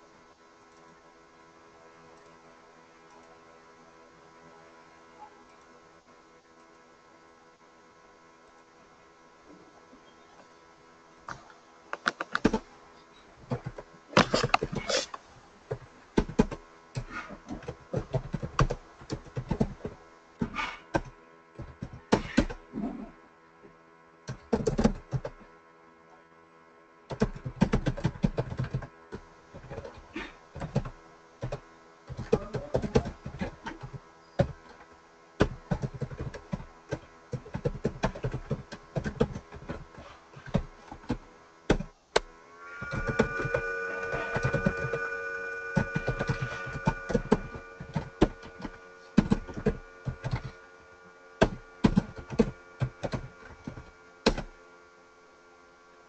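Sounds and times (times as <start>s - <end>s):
laptop keyboard typing: 12.0s - 12.6s, 13.5s - 20.0s, 24.3s - 25.4s, 27.1s - 30.0s, 30.6s - 34.8s, 35.4s - 41.9s, 42.8s - 50.6s, 51.4s - 54.5s.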